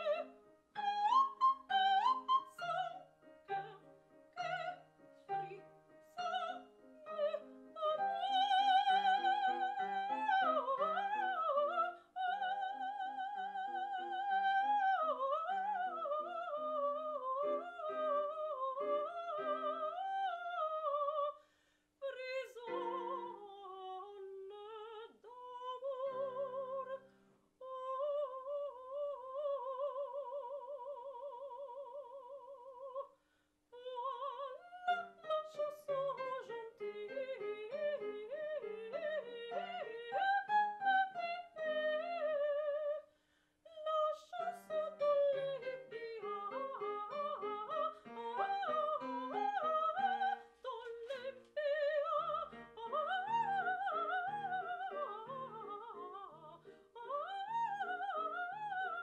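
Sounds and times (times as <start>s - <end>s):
piano accompaniment: 0.0s - 11.9s, 44.4s - 59.0s
soprano singing opera: 0.0s - 21.4s, 22.0s - 43.1s, 43.7s - 59.0s.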